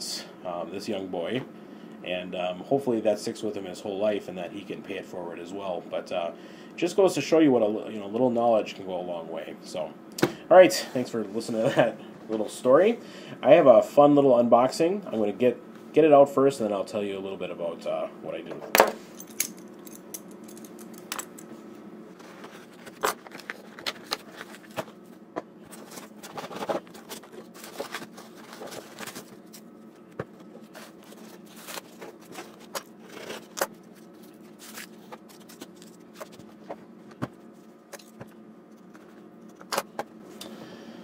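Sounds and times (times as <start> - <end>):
low steady hum: 0.0 - 41.0
digging through packing peanuts: 25.7 - 29.7, 30.4 - 36.6.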